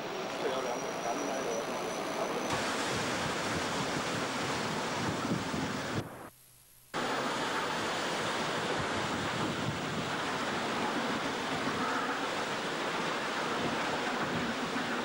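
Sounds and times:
wind blowing across microphone: 2.5s - 6.3s, 7.0s - 12.4s, 13.2s - 15.0s.

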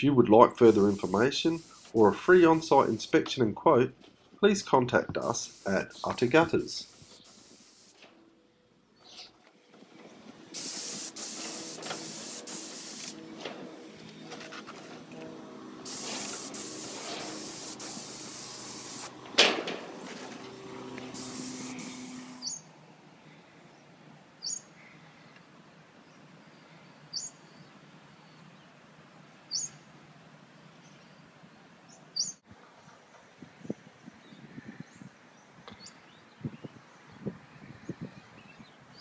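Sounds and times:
spray wand hissing: 0.6s - 3.2s, 5.2s - 8.0s, 10.5s - 13.2s, 15.8s - 19.2s, 21.0s - 22.6s
bird chirping: 22.2s - 22.7s, 23.7s - 25.4s, 26.0s - 28.6s, 29.5s - 29.8s, 31.9s - 34.5s.

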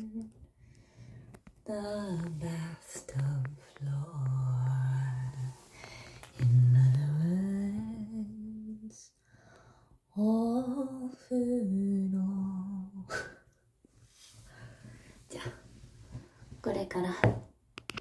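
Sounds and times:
woman singing long notes: 1.7s - 5.7s, 6.4s - 9.1s, 10.2s - 13.3s.

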